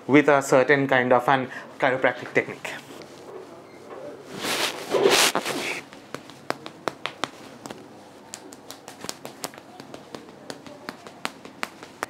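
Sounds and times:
wooden tool tapping on body: 5.9 - 12.0.

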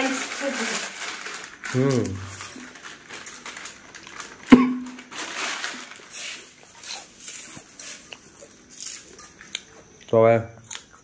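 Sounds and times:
plastic packet crinkling: 0.0 - 8.0
snacks rustling and crunching: 0.0 - 11.0.

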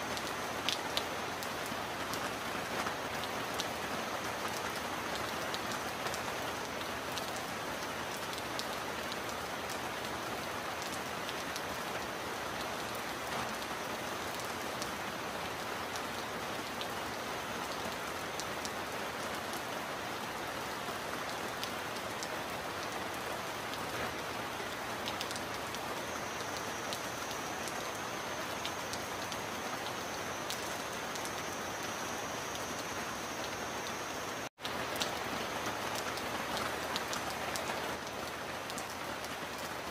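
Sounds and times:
heavy rain: 0.0 - 39.9
sharp raindrop ticks: 0.1 - 3.8, 23.7 - 39.9.

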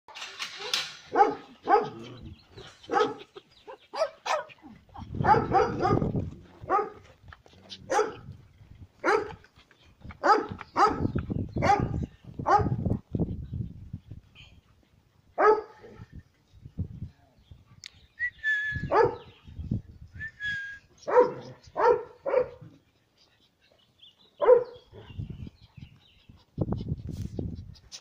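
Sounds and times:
dog barking: 1.1 - 2.0, 2.9 - 3.2, 3.9 - 4.5, 5.2 - 6.1, 6.7 - 7.0, 7.9 - 8.2, 9.0 - 9.4, 10.2 - 12.8, 15.4 - 15.8, 18.9 - 19.2, 21.1 - 22.6, 24.4 - 24.8.

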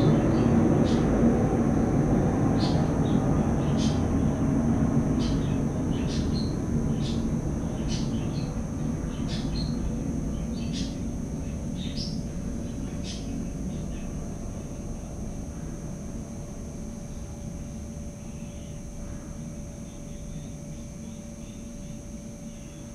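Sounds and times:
small bird chirping: 2.6 - 4.0, 5.2 - 14.2.

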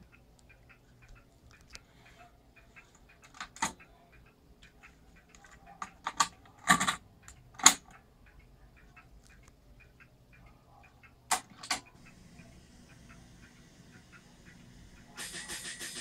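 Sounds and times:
cassette clicks and rattles: 3.2 - 3.8, 5.3 - 7.9, 11.3 - 11.9.

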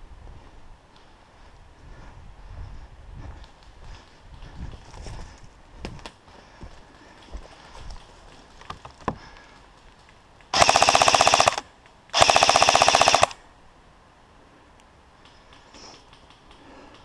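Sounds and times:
airsoft rifle full-auto bursts: 10.5 - 13.4.

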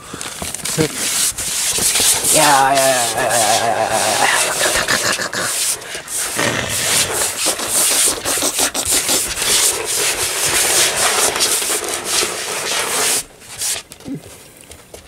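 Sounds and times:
scratchy rubbing on microphone: 0.5 - 13.8.

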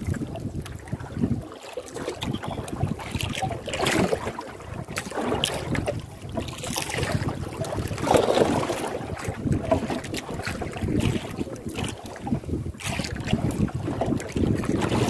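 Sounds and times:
water sloshing against boat hull: 0.0 - 15.0
wind buffeting microphone: 0.0 - 15.0.

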